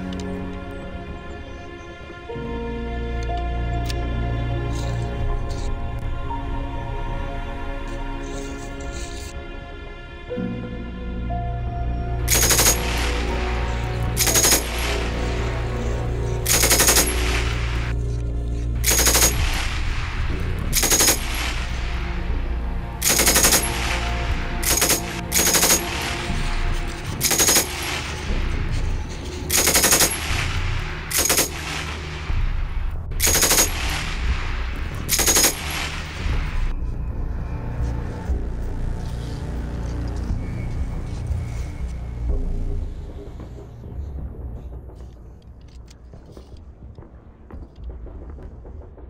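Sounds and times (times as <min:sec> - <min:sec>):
background music: 0:00.0 - 0:49.0
machine-gun fire bursts: 0:14.2 - 0:15.0, 0:16.5 - 0:17.6, 0:20.8 - 0:21.5, 0:23.0 - 0:26.2, 0:27.2 - 0:28.3, 0:29.5 - 0:32.1, 0:33.2 - 0:34.2, 0:35.1 - 0:36.2.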